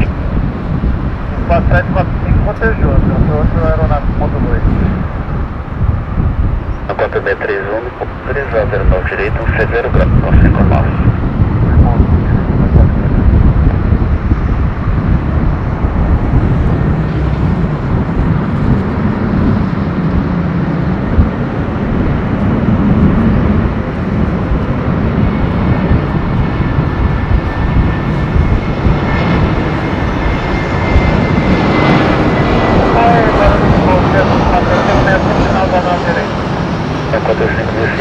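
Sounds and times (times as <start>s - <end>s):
jet engines roaring: 0.0s - 38.0s.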